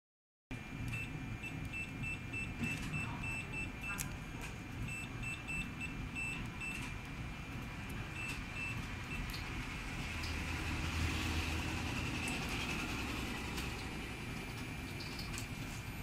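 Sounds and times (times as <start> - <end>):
keypad buzzer beeping: 0.8 - 7.1, 7.9 - 9.5, 11.9 - 12.5.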